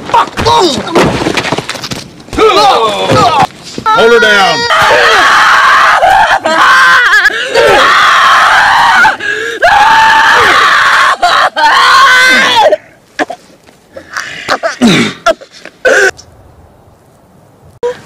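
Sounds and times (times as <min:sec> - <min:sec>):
woman screaming and wailing: 0:03.9 - 0:12.8.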